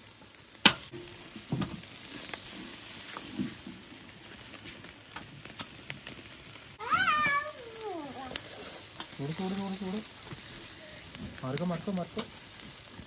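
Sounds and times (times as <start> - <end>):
food sizzling on grill: 0.0 - 13.0.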